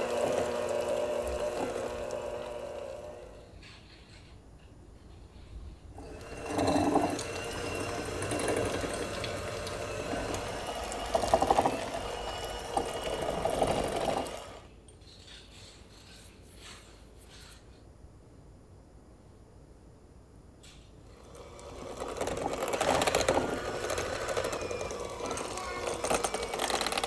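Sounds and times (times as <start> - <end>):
electric hand mixer running: 0.0 - 3.5, 6.0 - 14.7, 21.1 - 27.0.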